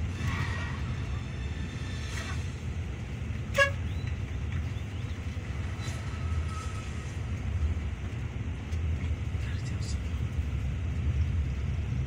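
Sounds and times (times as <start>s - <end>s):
bus engine rumble: 0.0s - 12.0s
road noise: 0.0s - 12.0s.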